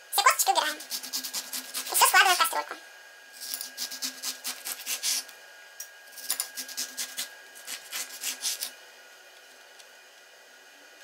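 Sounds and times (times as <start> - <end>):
knife sawing through lemon: 0.4 - 2.5, 3.4 - 5.3, 6.2 - 8.8.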